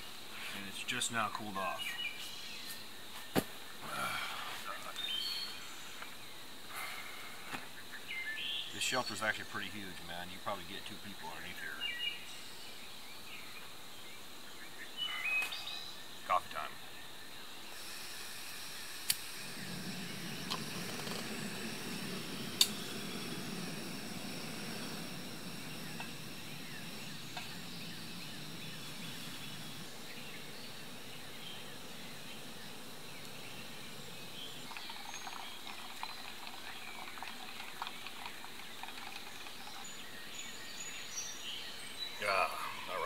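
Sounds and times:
gas burner flame rushing: 17.7s - 33.8s
stove igniter clicks: 22.6s - 22.8s.

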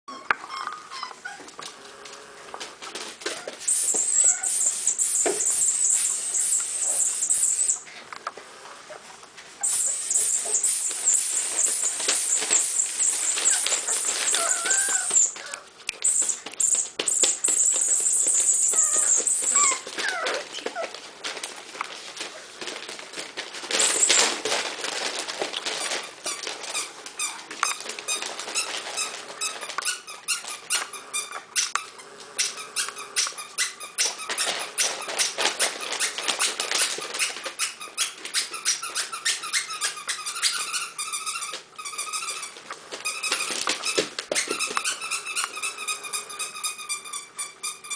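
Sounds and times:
puppies whimpering and yipping: 0.1s - 1.6s, 3.2s - 7.9s, 8.9s - 21.0s
paws and toys scuffling: 0.1s - 47.9s
high-pitched hiss: 3.7s - 7.8s, 9.6s - 14.3s.

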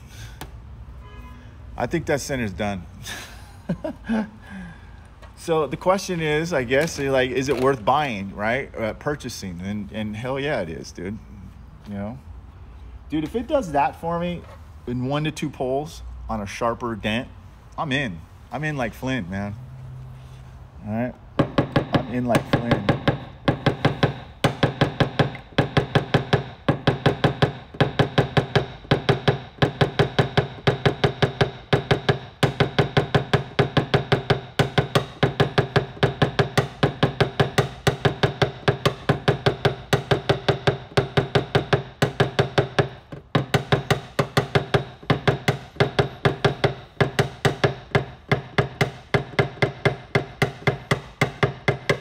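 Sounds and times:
rapid taps on metal panel: 21.4s - 52.0s.

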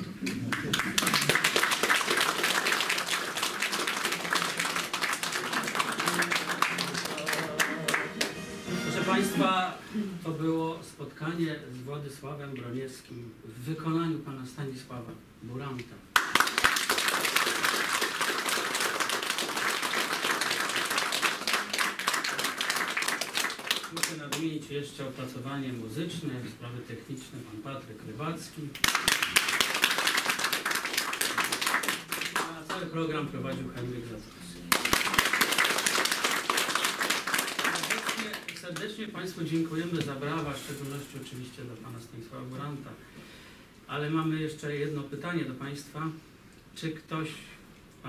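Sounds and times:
audience applauding: 0.2s - 9.4s, 16.2s - 24.2s, 28.8s - 32.8s, 34.7s - 38.8s.

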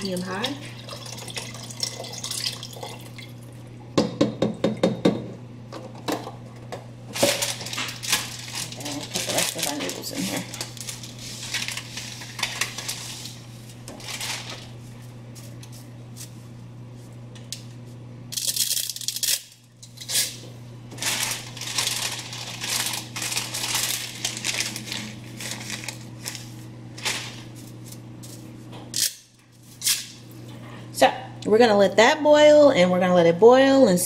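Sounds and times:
steady low hum: 0.0s - 34.0s.

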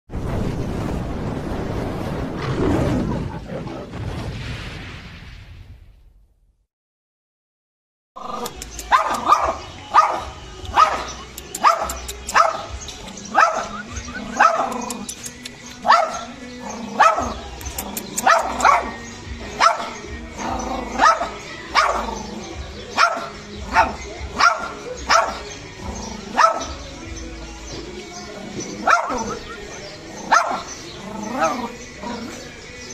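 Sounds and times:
dog barking: 8.8s - 12.7s, 13.3s - 15.0s, 15.8s - 17.4s, 18.0s - 19.0s, 19.6s - 20.0s, 20.9s - 22.2s, 22.9s - 25.5s, 26.3s - 26.8s, 28.8s - 29.5s, 30.2s - 32.3s.

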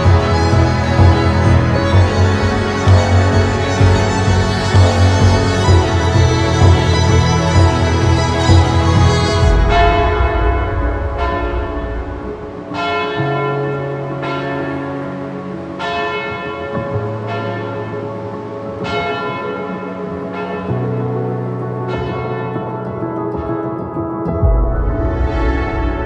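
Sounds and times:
low bass note: 0.0s - 13.5s.

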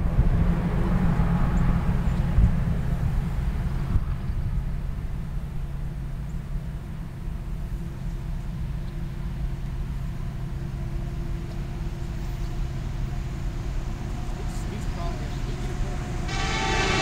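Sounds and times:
low engine rumble: 0.0s - 17.0s.

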